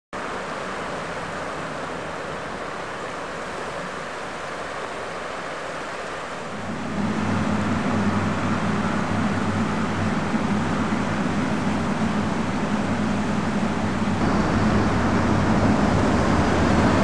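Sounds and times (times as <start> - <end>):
river rushing over stones: 0.2 - 7.2, 12.5 - 17.0
low steady hum: 6.3 - 17.0.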